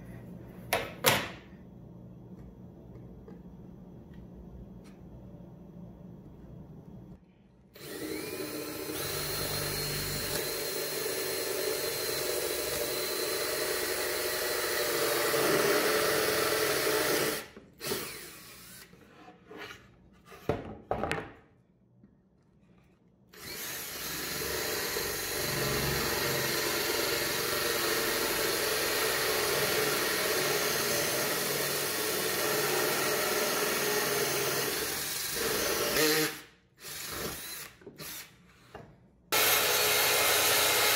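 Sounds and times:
cordless drill boring wood: 7.8 - 18.9, 23.3 - 38.3, 39.3 - 40.9.

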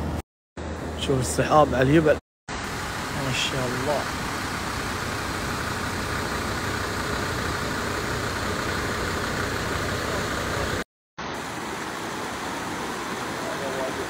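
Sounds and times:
floodwater rushing over rocks: 11.3 - 14.0.

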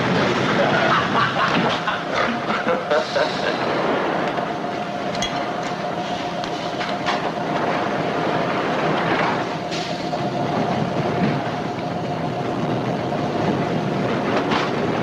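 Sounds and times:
steady whine: 0.0 - 15.0
subway car rumble: 0.0 - 15.0
wheel clacks: 3.8 - 15.0.

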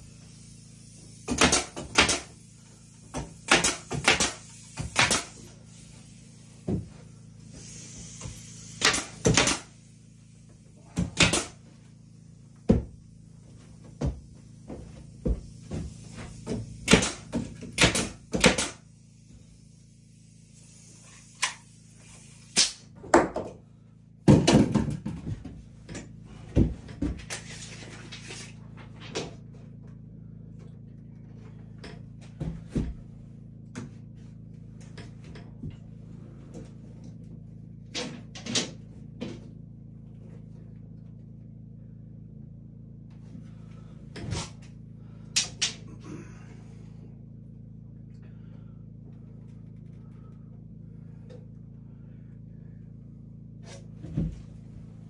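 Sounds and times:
nail gun firing into wood: 1.2 - 2.4, 3.3 - 5.4, 8.8 - 9.7, 11.0 - 11.6, 16.8 - 18.8, 22.5 - 23.3.

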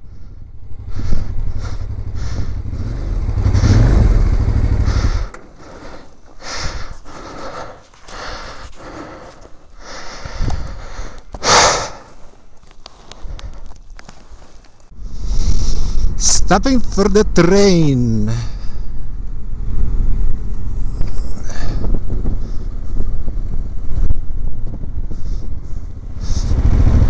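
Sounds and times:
wind rumble on microphone: 0.0 - 5.3, 10.2 - 11.1, 14.9 - 16.5, 18.6 - 27.0
motorcycle riding: 0.0 - 9.4, 12.0 - 27.0
wind gusts on microphone: 10.2 - 11.0, 14.9 - 16.6, 18.7 - 27.0.

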